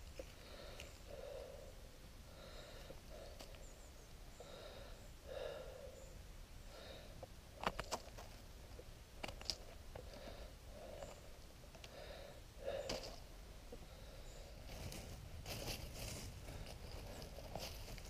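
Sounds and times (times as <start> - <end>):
breathing through the nose: 0.2 - 3.7, 4.3 - 7.3, 10.0 - 13.2.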